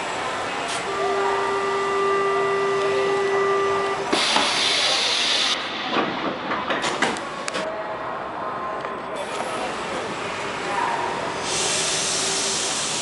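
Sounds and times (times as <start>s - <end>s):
door warning buzzer: 0.9s - 4.4s
air hiss of doors closing: 4.1s - 6.2s, 11.4s - 13.0s
knocks and clunks: 5.8s - 7.7s.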